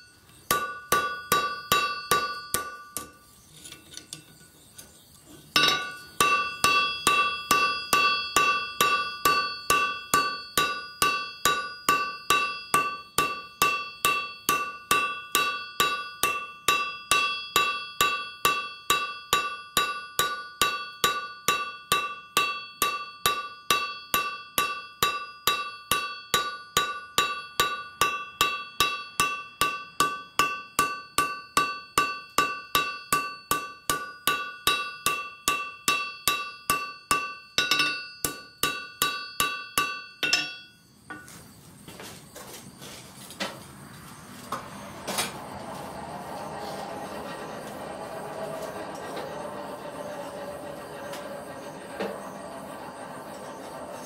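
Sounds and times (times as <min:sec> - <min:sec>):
hammer blows on anvil ringing: 0:00.0 - 0:03.2, 0:05.6 - 0:41.3.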